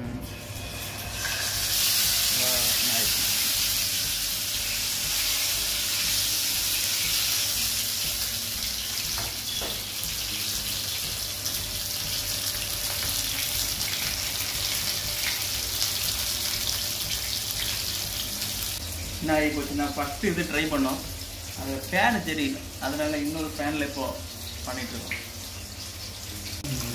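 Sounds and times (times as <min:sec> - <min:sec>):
fish sizzling in hot oil: 0:00.4 - 0:26.9
faint crackles of frying: 0:00.6 - 0:26.9.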